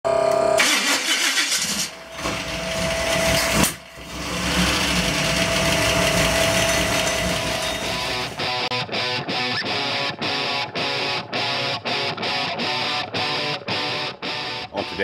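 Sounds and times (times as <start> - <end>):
car engine running: 1.4 - 8.6.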